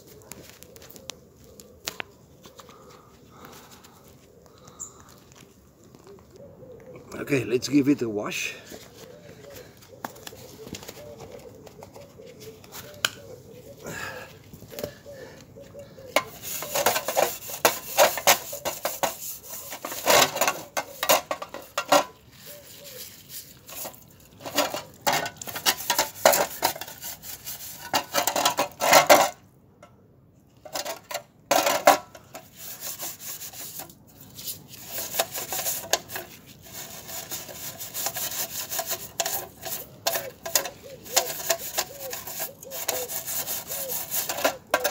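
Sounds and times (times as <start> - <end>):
hand scrubbing sheet steel: 16.2 - 28.6, 32.3 - 44.9.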